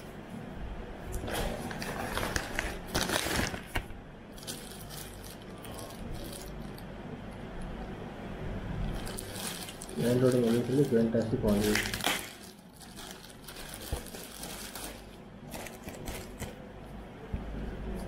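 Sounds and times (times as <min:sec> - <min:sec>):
plastic packaging crinkling: 0:01.2 - 0:06.9, 0:08.9 - 0:16.6.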